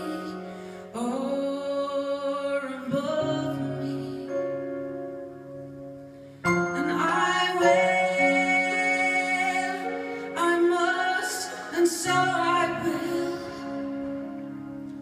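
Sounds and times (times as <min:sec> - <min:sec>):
keyboard chords: 0:00.0 - 0:15.0
woman singing long notes: 0:06.8 - 0:14.4.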